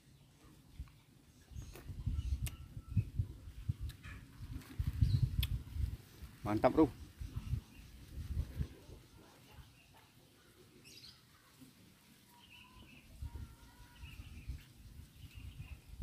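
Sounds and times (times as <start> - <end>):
faint bird chirps and whistles: 1.3 - 4.2, 4.8 - 5.9, 12.2 - 16.0.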